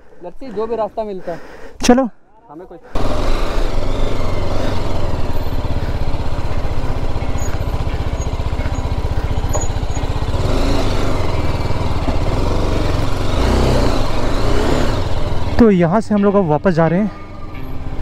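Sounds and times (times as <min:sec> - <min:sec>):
motorcycle engine chugging: 0:03.0 - 0:16.3.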